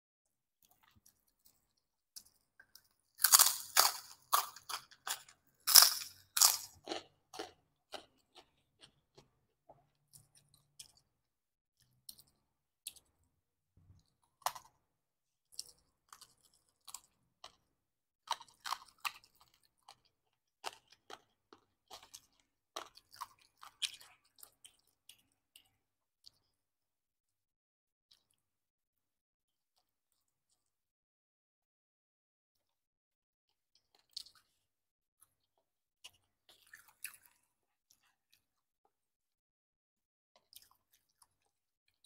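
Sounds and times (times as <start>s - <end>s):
crunchy chewing: 0.6s - 11.1s, 15.5s - 26.5s, 35.5s - 38.5s.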